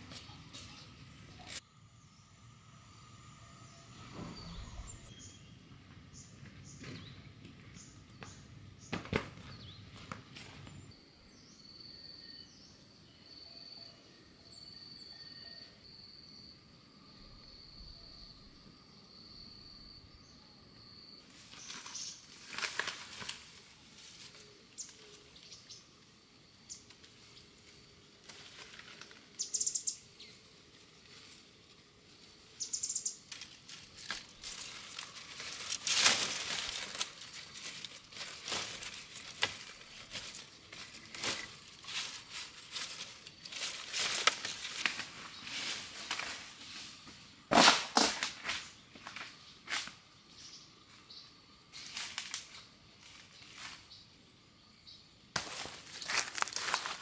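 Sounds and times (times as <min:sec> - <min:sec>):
bamboo leaves rustling: 0:00.0 - 0:01.6, 0:21.3 - 0:25.7, 0:26.8 - 0:50.0, 0:51.7 - 0:54.0, 0:55.4 - 0:57.0
insect high tone: 0:00.0 - 0:06.8, 0:10.7 - 0:22.5, 0:23.4 - 0:30.5, 0:32.1 - 0:47.3
bird chirps: 0:00.1 - 0:09.8, 0:21.6 - 0:22.2, 0:29.4 - 0:30.4, 0:32.6 - 0:33.3.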